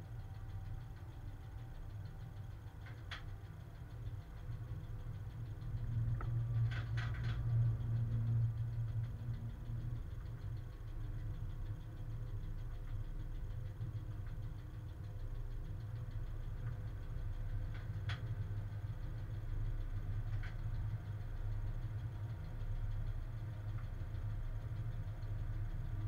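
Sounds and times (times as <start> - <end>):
locomotive rumble and hum: 0.0 - 26.0.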